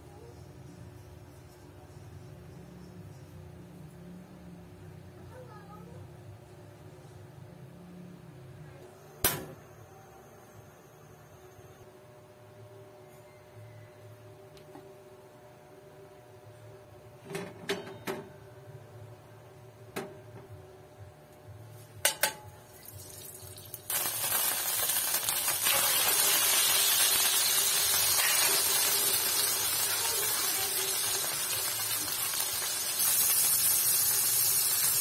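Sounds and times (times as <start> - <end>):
chicken sizzling in hot oil: 22.6 - 35.0.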